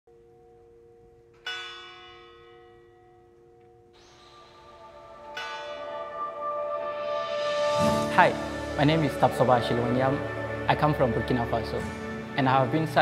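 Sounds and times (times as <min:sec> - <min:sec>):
music: 0:00.1 - 0:13.0
large bell ringing: 0:04.3 - 0:10.3.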